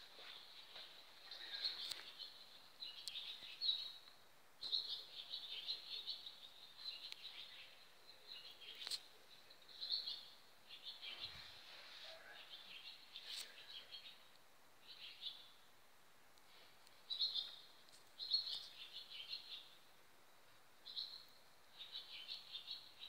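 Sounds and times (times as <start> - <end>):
birds chirping: 0.0 - 15.7, 16.5 - 19.9, 20.8 - 23.0.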